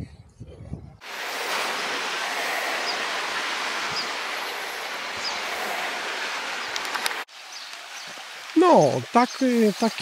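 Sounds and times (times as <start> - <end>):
sea surf washing against rocks: 1.0 - 7.3.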